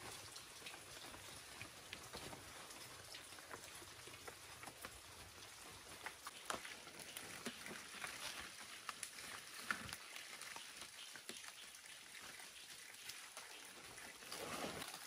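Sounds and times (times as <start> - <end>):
leaves rustling and crackling: 0.0 - 15.0.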